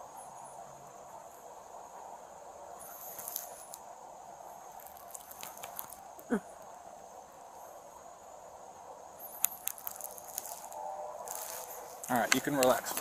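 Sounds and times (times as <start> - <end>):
night insects chirring: 0.0 - 13.0
sharp clicks: 12.0 - 13.0.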